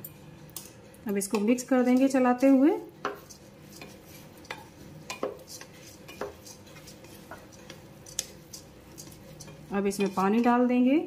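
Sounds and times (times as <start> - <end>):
spatula scraping dry rice: 3.1 - 10.5
spatula knocking against pot: 4.4 - 6.5.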